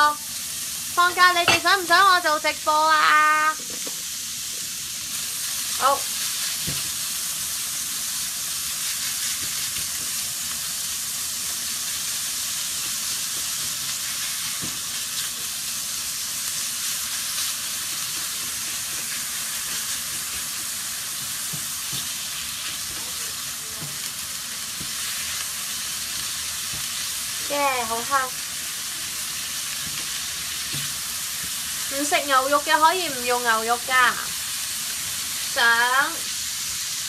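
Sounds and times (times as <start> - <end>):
meat and onion sizzling in a pan: 0.0 - 37.0.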